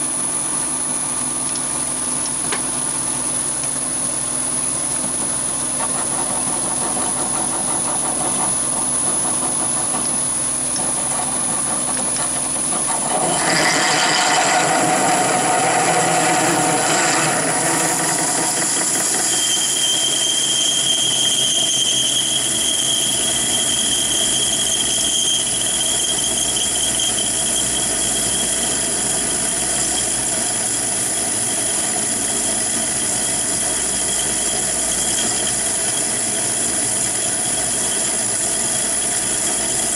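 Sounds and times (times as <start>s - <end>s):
lathe drilling into steel: 12.4s - 39.9s
belt slipping screech: 12.9s - 39.9s.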